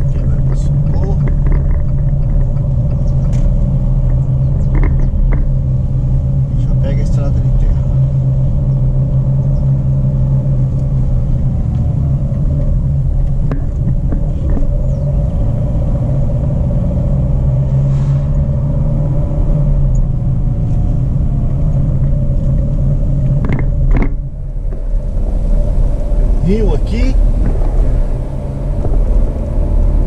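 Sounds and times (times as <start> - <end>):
knocks and rattles: 0.0 - 5.8, 11.7 - 15.7, 21.8 - 26.4, 27.2 - 30.0
engine and tyres rumbling: 0.0 - 30.0.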